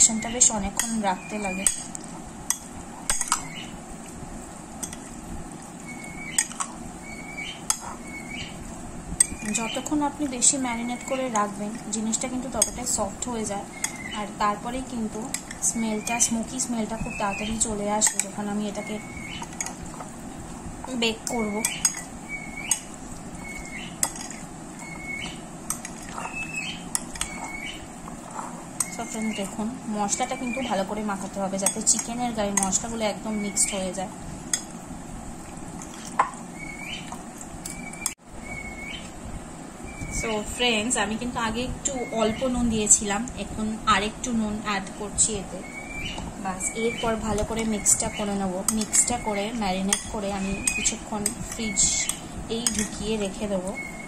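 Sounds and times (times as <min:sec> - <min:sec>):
spoon stirring chicken: 0:05.8 - 0:34.8, 0:46.2 - 0:53.4
spoon clinking against glass bowl: 0:49.8 - 0:53.1.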